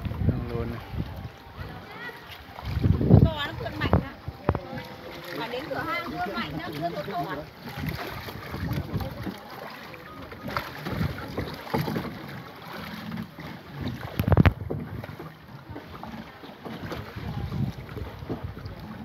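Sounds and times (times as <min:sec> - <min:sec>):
wind buffeting microphone: 0:00.0 - 0:05.1, 0:07.6 - 0:09.4, 0:13.8 - 0:16.2, 0:16.8 - 0:19.0
water lapping around boat: 0:00.0 - 0:19.0.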